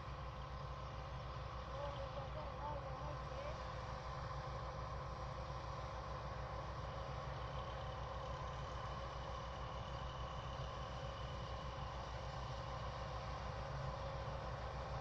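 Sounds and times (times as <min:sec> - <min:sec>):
steady engine whine: 0:00.0 - 0:15.0.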